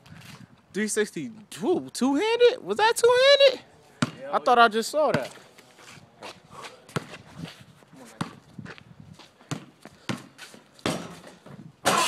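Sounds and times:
basketball bouncing on asphalt: 0:04.0 - 0:04.4, 0:05.0 - 0:05.5, 0:06.2 - 0:12.0.

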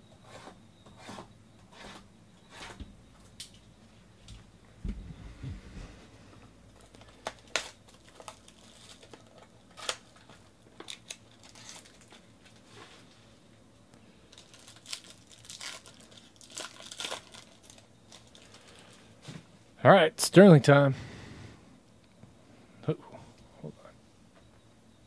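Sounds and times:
foil wrapper tearing and crinkling: 0:06.8 - 0:12.7, 0:14.3 - 0:19.0.

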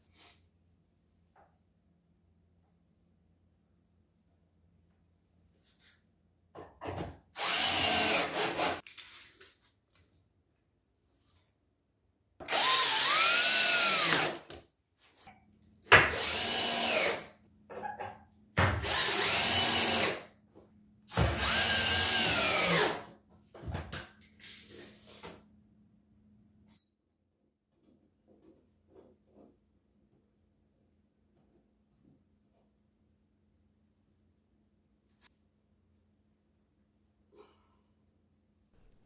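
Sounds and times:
cordless drill driving into wood: 0:07.4 - 0:08.8, 0:12.4 - 0:14.5, 0:15.9 - 0:17.3, 0:18.7 - 0:20.2, 0:21.1 - 0:23.1.

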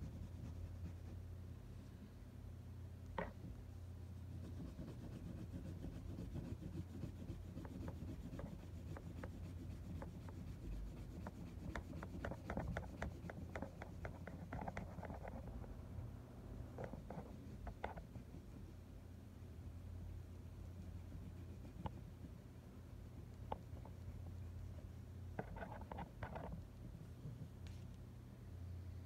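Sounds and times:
colored pencil scratching on paper: 0:00.0 - 0:01.2, 0:04.3 - 0:15.5, 0:16.8 - 0:18.8, 0:20.4 - 0:22.4, 0:25.4 - 0:27.8.

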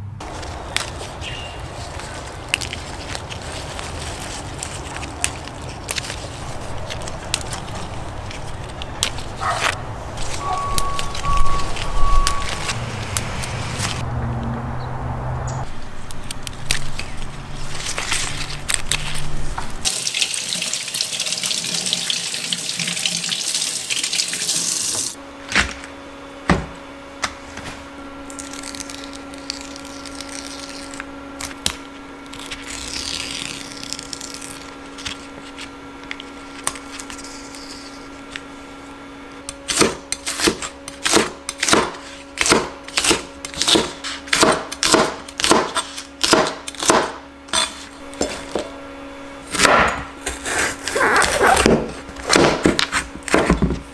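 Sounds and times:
knife chopping on plastic board: 0:39.8 - 0:47.2.

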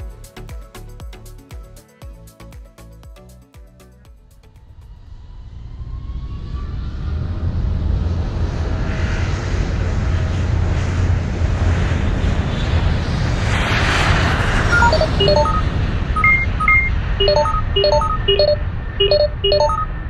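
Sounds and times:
spaceship engine low rumble: 0:04.3 - 0:20.0.

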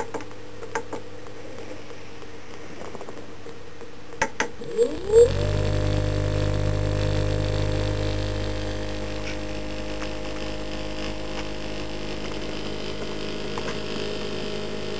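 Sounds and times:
electric motor humming and whining: 0:04.6 - 0:14.9.

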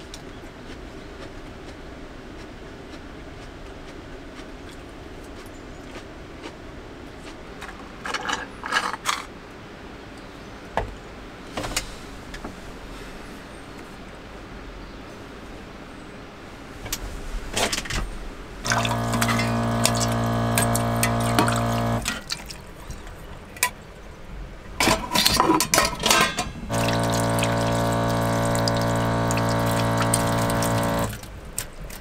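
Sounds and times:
electric water pump humming: 0:18.6 - 0:22.4, 0:26.4 - 0:31.5
tap water running into sink: 0:18.6 - 0:22.5, 0:26.7 - 0:31.3
water splashing: 0:18.6 - 0:23.2, 0:26.7 - 0:32.0.

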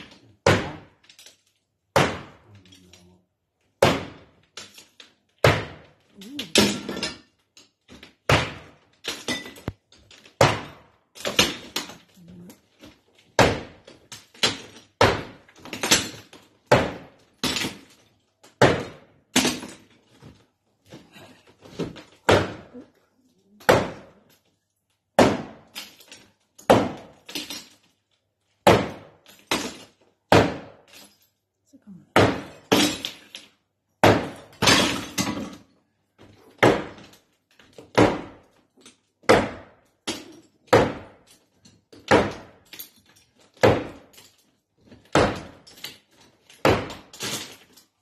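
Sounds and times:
hammer smashing artwork: 0:00.0 - 0:01.1, 0:01.9 - 0:02.5, 0:03.8 - 0:04.8, 0:05.4 - 0:07.2, 0:07.9 - 0:12.0, 0:13.3 - 0:19.9, 0:21.6 - 0:22.8, 0:23.6 - 0:24.3, 0:25.1 - 0:27.8, 0:28.6 - 0:31.1, 0:32.1 - 0:35.6, 0:36.4 - 0:38.6, 0:39.2 - 0:44.2, 0:44.8 - 0:47.8.

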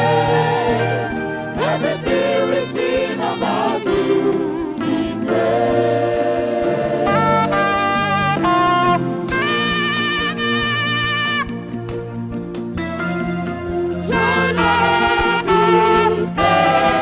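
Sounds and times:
trumpets: 0:00.0 - 0:04.4, 0:07.0 - 0:11.9, 0:14.0 - 0:17.0
saxophone: 0:00.0 - 0:05.8, 0:06.6 - 0:17.0
choir singing gospel: 0:00.0 - 0:09.2, 0:14.0 - 0:17.0.

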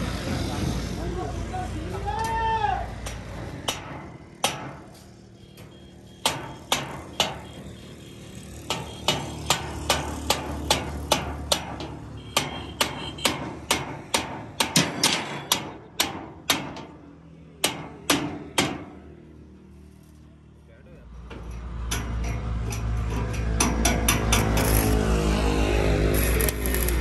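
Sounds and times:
hammer striking steel pipe: 0:03.7 - 0:04.9, 0:06.2 - 0:07.4, 0:08.7 - 0:16.9, 0:17.6 - 0:18.9, 0:21.9 - 0:24.7.

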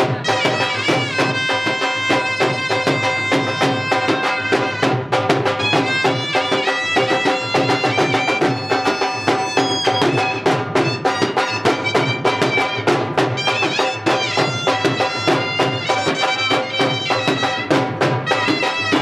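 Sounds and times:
dhol drums fast rhythm: 0:00.0 - 0:19.0
reed wind instrument melody: 0:00.0 - 0:19.0.

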